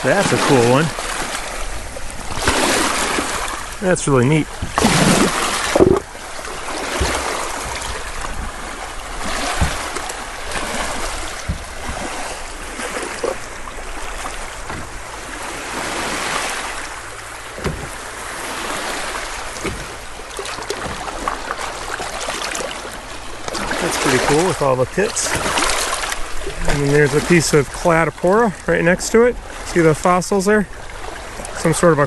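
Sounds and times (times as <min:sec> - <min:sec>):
waves lapping over pebbles: 0:00.0 - 0:32.0
short knocks: 0:04.6 - 0:06.1.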